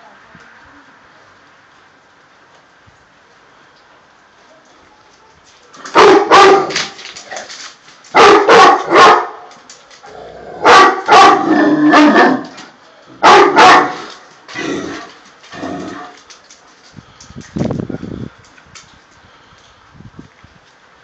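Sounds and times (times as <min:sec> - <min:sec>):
dogs barking deep and loud: 0:05.8 - 0:07.0, 0:08.1 - 0:09.5, 0:10.6 - 0:12.5, 0:13.2 - 0:14.2.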